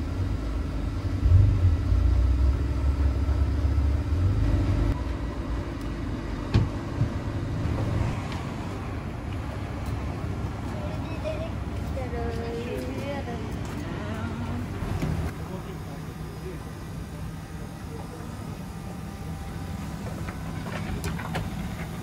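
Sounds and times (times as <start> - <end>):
low steady rumble: 0.0 - 9.8.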